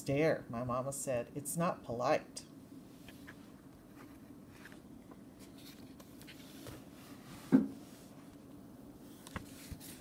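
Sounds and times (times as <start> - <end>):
page rustling: 5.4 - 6.9, 9.1 - 10.0.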